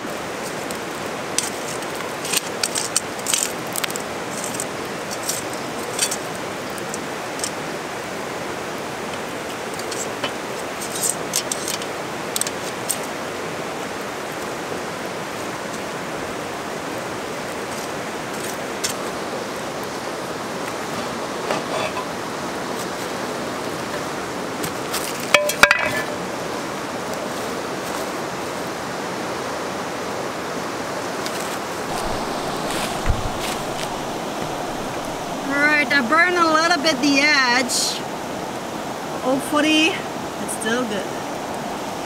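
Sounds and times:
river rushing: 0.0 - 42.0
metal clinks on cast iron pot: 21.5 - 22.1, 25.3 - 26.2.

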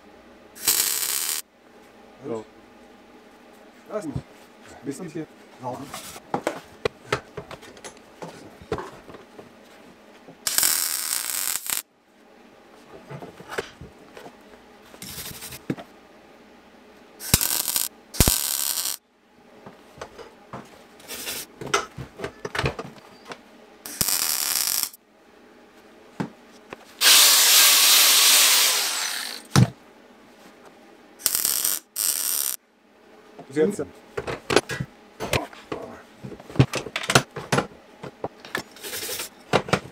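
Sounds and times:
welding arc crackling: 0.6 - 1.4, 10.5 - 11.8, 17.2 - 19.0, 23.9 - 25.0, 27.0 - 29.5, 31.2 - 32.6.

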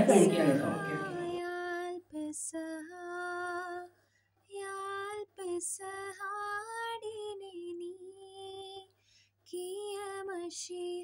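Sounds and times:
woman singing unaccompanied: 0.0 - 3.9, 4.5 - 8.9, 9.5 - 11.0.

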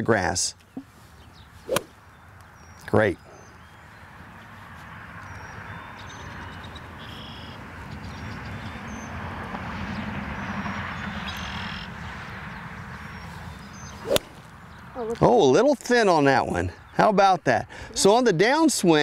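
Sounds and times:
short bird calls: 5.3 - 7.6.

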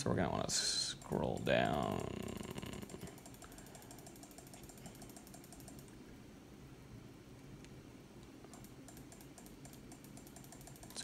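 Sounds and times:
low steady hum: 0.0 - 11.0
rapid faint clicking: 0.9 - 6.0, 8.5 - 11.0.

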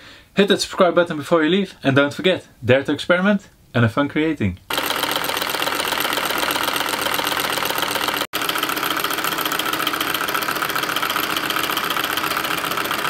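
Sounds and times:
model engine running: 4.7 - 13.0.

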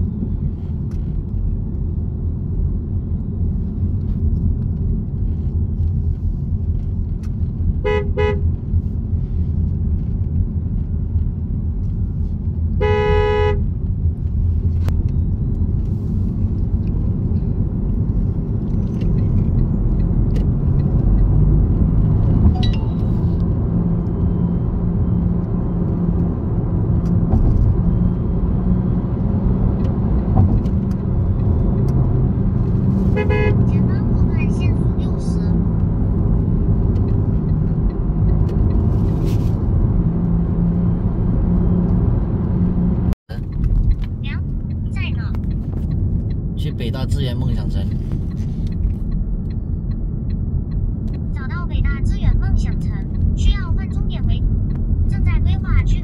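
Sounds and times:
car road and engine rumble: 0.0 - 56.0
car horn honking: 7.8 - 8.5, 12.8 - 13.7, 33.1 - 33.8.

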